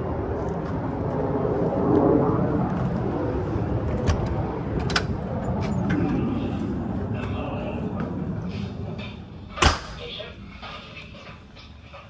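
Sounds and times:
low rumbling background noise: 0:00.0 - 0:12.0.

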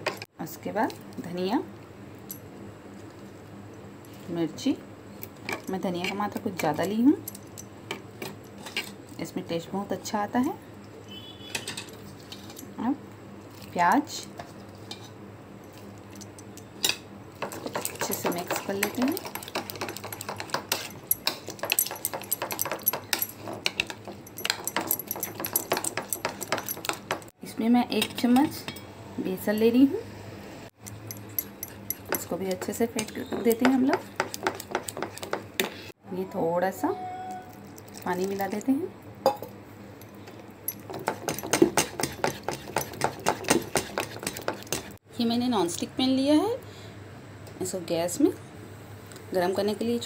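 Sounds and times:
spoon scraping against a bowl: 0:30.8 - 0:35.4
spoon beating batter in bowl: 0:31.0 - 0:35.5, 0:40.9 - 0:45.0.

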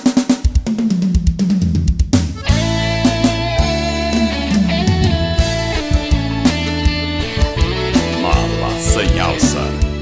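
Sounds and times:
band playing chords over bass: 0:02.2 - 0:10.0.

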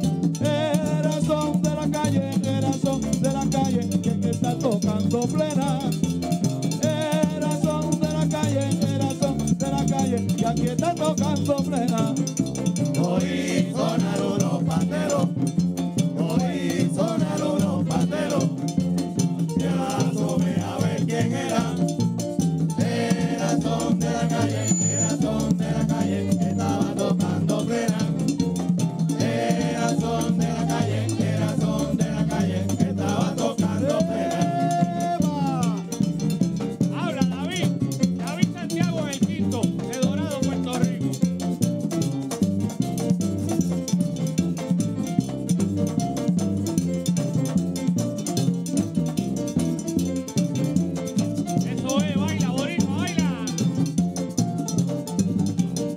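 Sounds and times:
frame drums: 0:00.0 - 0:55.9
upright bass: 0:00.0 - 0:55.9
men singing lead and chorus: 0:00.3 - 0:36.2, 0:51.6 - 0:53.8
guiro scraping: 0:12.6 - 0:39.0.

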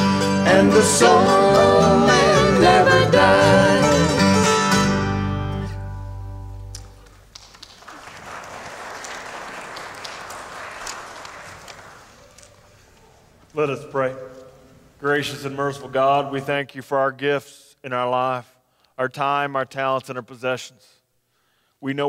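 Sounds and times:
voices singing a hymn: 0:00.0 - 0:04.5
acoustic guitars and mandolin: 0:00.0 - 0:07.0
congregation applauding: 0:06.8 - 0:13.2.

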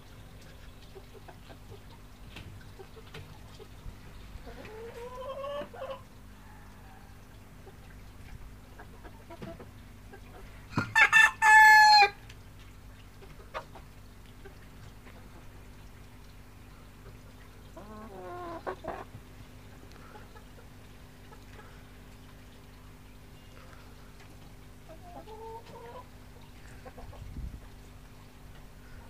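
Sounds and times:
soft low chicken call: 0:10.2 - 0:12.2
cockerel crowing: 0:10.7 - 0:12.2.

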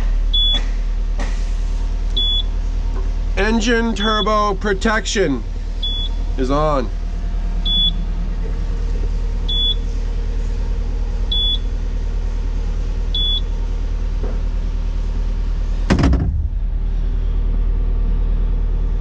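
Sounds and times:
diesel engine idling: 0:00.0 - 0:19.0
warning beeper beeping: 0:02.2 - 0:02.5, 0:03.9 - 0:04.5, 0:05.8 - 0:06.3, 0:07.6 - 0:08.1, 0:09.5 - 0:09.9, 0:11.3 - 0:11.7, 0:13.1 - 0:13.5
sharp thump: 0:15.9 - 0:16.7.

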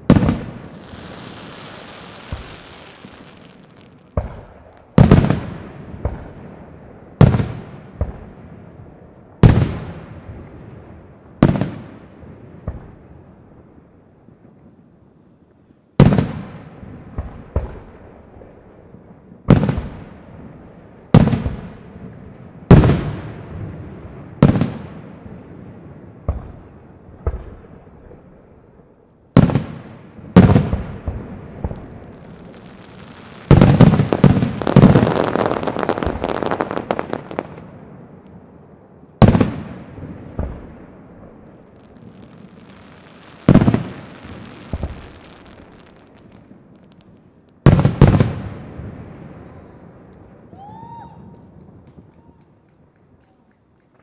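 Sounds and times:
firework crackling: 0:00.0 - 0:14.1, 0:29.3 - 0:54.0.

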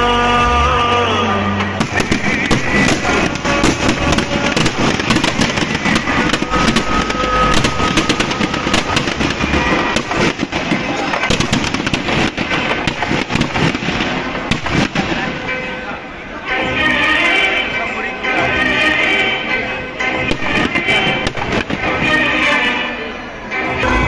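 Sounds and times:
firecrackers banging and crackling: 0:01.6 - 0:16.6, 0:20.0 - 0:23.0.

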